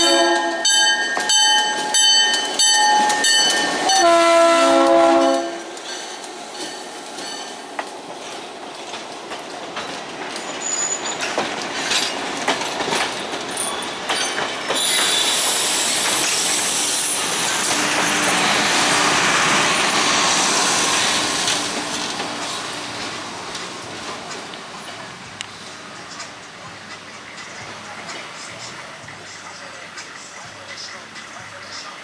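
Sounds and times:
wheels clicking over rail joints: 0:00.0 - 0:16.5, 0:19.6 - 0:31.0
rush of passing train: 0:00.0 - 0:32.0
high wheel squeals: 0:10.4 - 0:11.4, 0:13.6 - 0:21.2.

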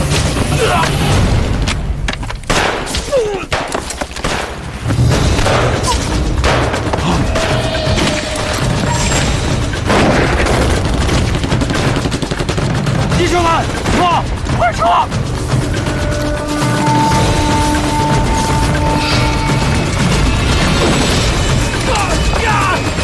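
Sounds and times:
gunfire: 0:02.4 - 0:06.9, 0:09.8 - 0:14.4
explosions booming: 0:04.5 - 0:14.6.

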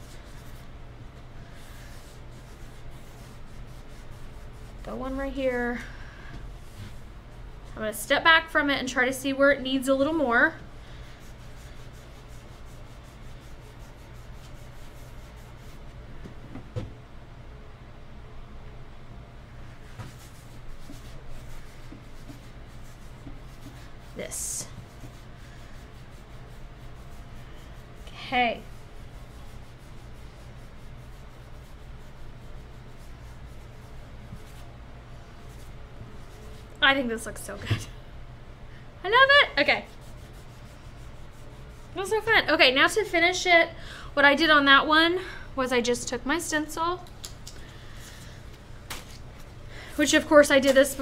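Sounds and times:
paper towel rubbing on wood: 0:01.4 - 0:05.7, 0:11.0 - 0:15.9, 0:19.7 - 0:36.6, 0:39.1 - 0:43.2.

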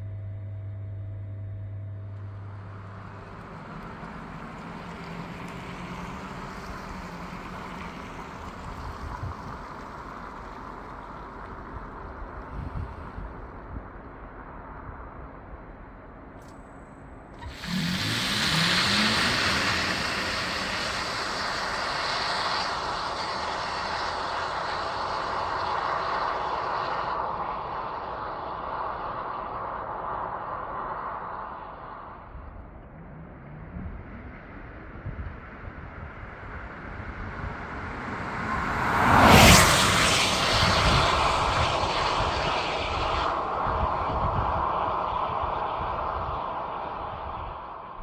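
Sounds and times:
low wavering tone: 0:00.0 - 0:13.4
car road and wind noise: 0:02.0 - 0:48.0.

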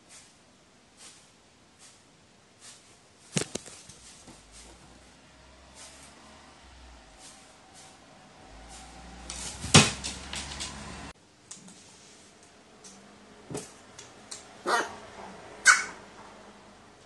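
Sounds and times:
pecking paper on wooden floor: 0:02.6 - 0:04.8, 0:08.8 - 0:11.0.

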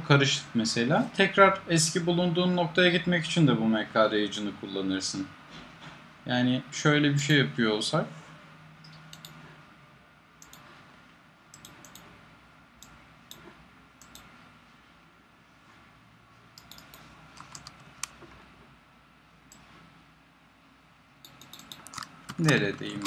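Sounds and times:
mouse clicks: 0:16.6 - 0:18.2, 0:21.2 - 0:22.6
keyboard keystrokes: 0:21.3 - 0:23.0.

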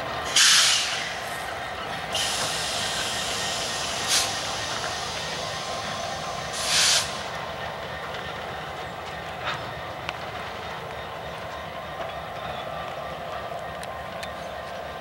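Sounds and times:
diesel locomotive rumble: 0:00.0 - 0:15.0
air hissing bursts: 0:00.3 - 0:01.2, 0:02.1 - 0:05.8, 0:06.5 - 0:07.3.

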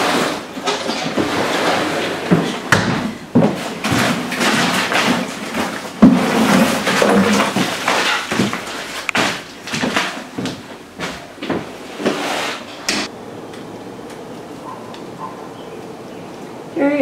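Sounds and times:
rubber shreds rustling and scraping: 0:00.0 - 0:11.2.

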